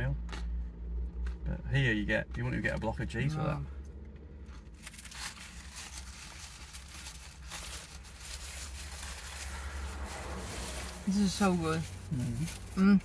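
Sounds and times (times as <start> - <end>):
paper napkin rustling: 4.8 - 12.7.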